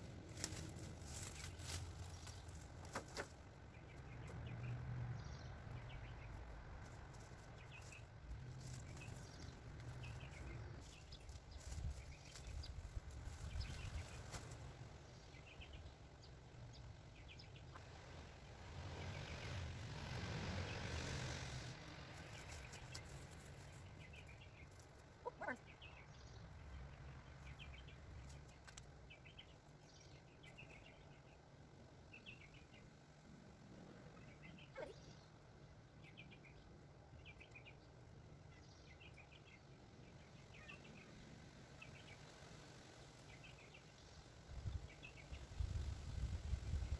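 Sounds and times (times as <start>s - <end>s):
dry vines rustling: 0.0s - 4.2s, 6.2s - 15.0s, 20.8s - 25.4s
faint birds chirping: 0.0s - 46.9s.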